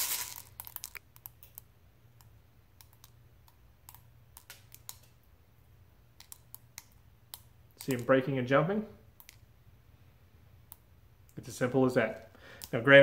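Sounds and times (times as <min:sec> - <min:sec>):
beads cracking and popping in water: 0:00.0 - 0:01.7.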